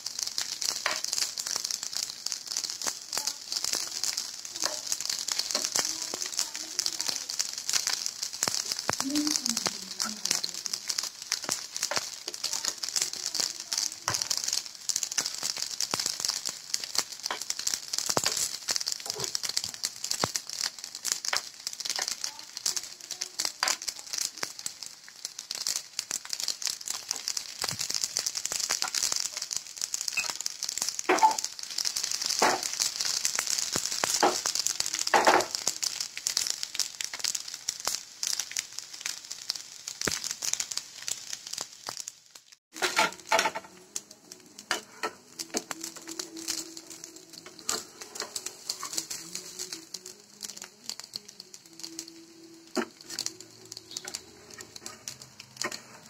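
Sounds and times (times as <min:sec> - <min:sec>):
oil frying with crackling pops: 0:00.0 - 0:56.0.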